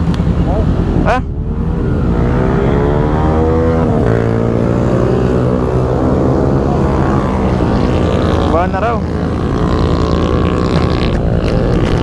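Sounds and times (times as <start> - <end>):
motorcycle engines idling: 0.0 - 2.8.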